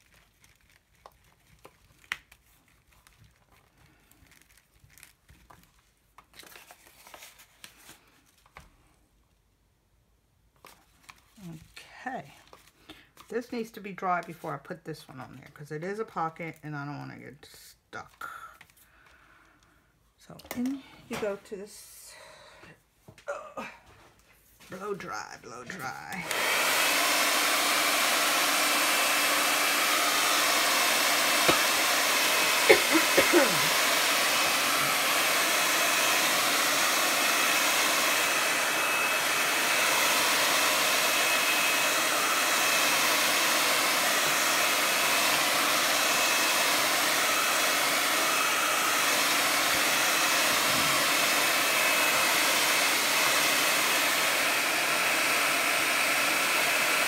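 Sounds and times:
hair dryer blowing: 20.5s - 22.2s, 24.7s - 57.0s.

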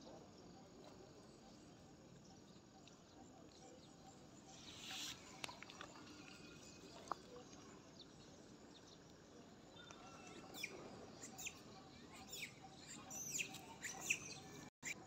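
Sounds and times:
faint outdoor background: 0.0s - 15.0s
high chirping calls: 3.7s - 7.2s, 9.8s - 15.0s.

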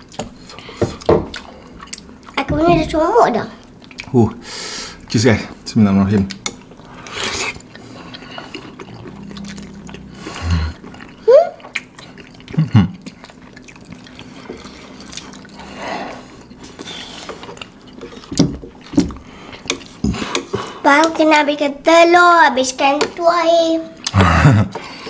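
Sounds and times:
chewing: 0.0s - 2.5s, 6.1s - 21.2s
slurping noodles: 6.9s - 12.4s.

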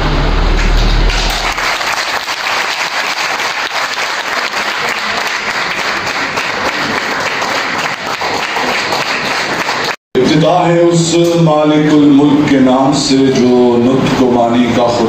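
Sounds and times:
low rumble: 0.0s - 1.9s
audience applauding: 0.5s - 10.0s.

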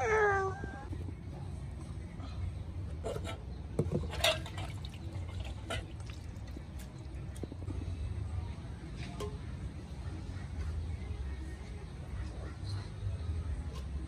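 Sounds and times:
low steady hum: 0.0s - 14.0s
water splashing and dribbling: 3.8s - 7.7s.

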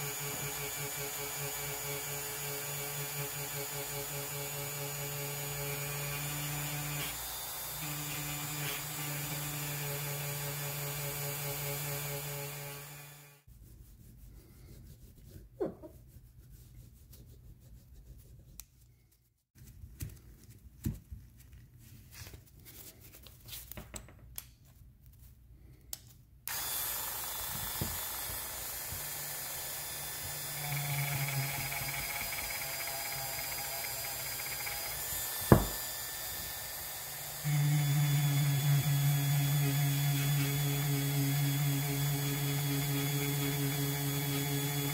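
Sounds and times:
rotary tool motor hum: 0.0s - 13.4s, 26.5s - 44.9s.

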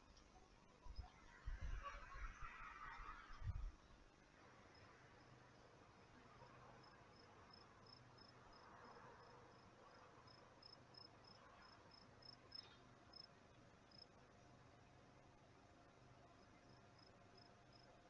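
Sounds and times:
cricket chirping: 4.6s - 14.2s, 16.4s - 18.0s.

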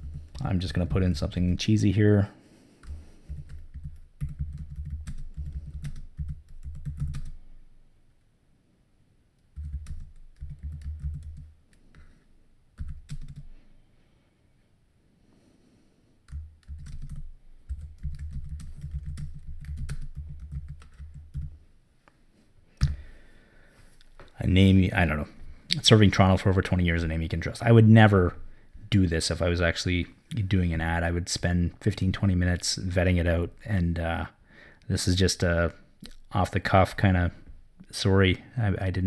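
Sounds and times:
typing on computer keyboard: 2.8s - 7.4s, 9.6s - 11.5s, 12.8s - 13.5s, 16.3s - 21.6s.

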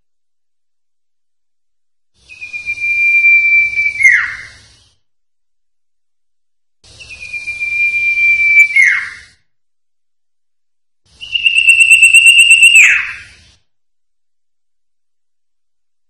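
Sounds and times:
bird whistling: 2.2s - 4.8s, 6.9s - 9.4s, 11.2s - 13.5s.

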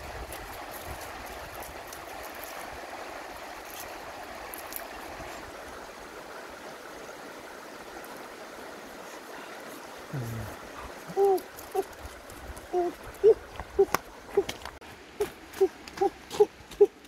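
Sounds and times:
river water rushing: 0.0s - 17.0s.

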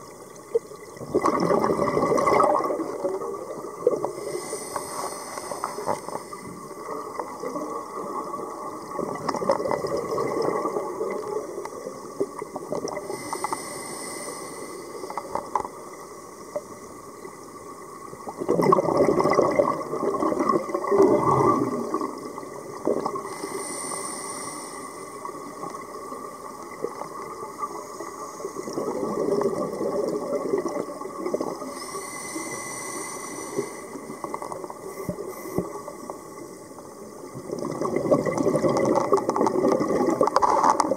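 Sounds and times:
exhaled bubbles rushing: 0.5s - 4.3s, 5.7s - 13.1s, 18.2s - 23.3s, 28.5s - 31.7s, 37.3s - 40.9s
regulator inhale hiss: 4.1s - 6.7s, 13.0s - 16.7s, 23.2s - 26.6s, 31.5s - 37.0s.

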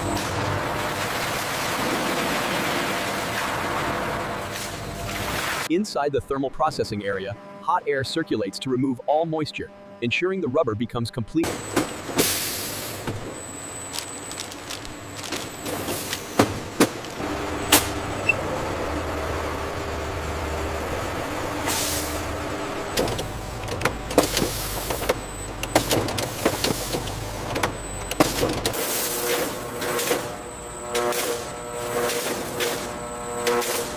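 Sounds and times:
low motor hum: 11.4s - 33.9s
mechanical clicks and clacks: 23.0s - 28.8s.

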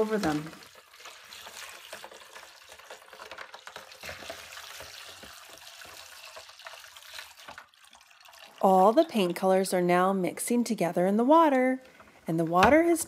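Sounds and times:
water pouring and splashing: 0.0s - 9.6s.

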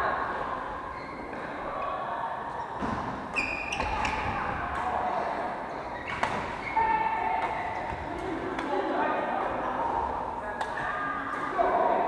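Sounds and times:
shoe squeaking on court floor: 2.6s - 4.5s, 5.7s - 8.2s
rackets hitting shuttlecock: 6.0s - 6.5s.

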